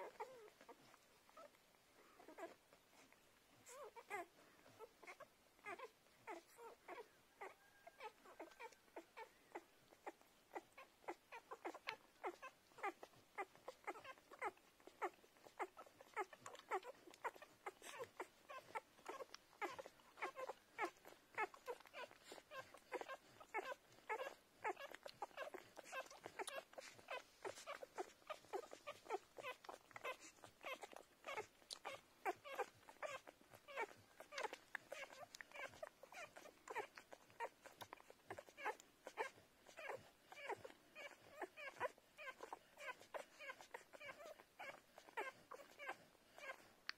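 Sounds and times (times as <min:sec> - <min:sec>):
puppies squeaking and whimpering: 0:00.0 - 0:46.9.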